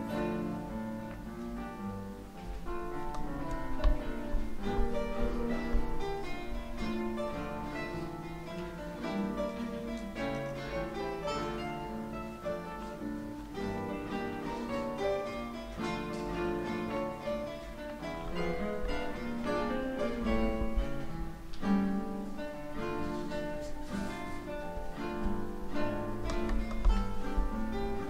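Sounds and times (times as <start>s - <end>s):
classical guitars playing jazz: 0.0s - 28.0s.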